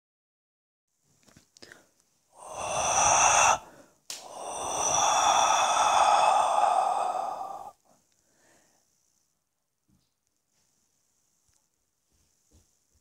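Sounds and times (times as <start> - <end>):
person breathing out loudly: 1.6 - 8.8.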